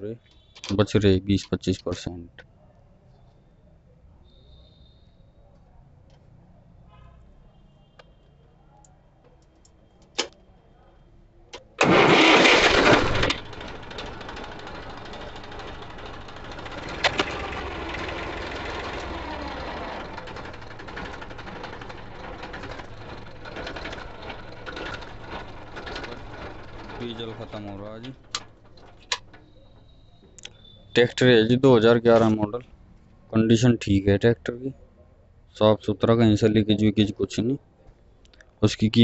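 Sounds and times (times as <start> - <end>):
starter clicks: 0.3 - 2.1, 11.5 - 30.6
tractor diesel engine starting and idling: 11.8 - 34.0.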